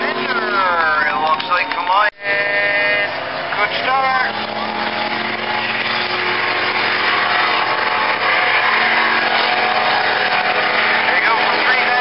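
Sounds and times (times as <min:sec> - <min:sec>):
race boat engines droning: 0:00.0 - 0:12.0.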